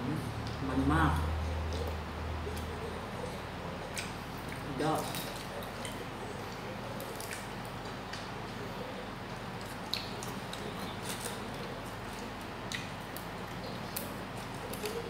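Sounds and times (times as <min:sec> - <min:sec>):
background hum: 0:00.0 - 0:15.0
chewing: 0:01.2 - 0:15.0
herb leaves snapping: 0:04.0 - 0:08.3, 0:09.6 - 0:15.0.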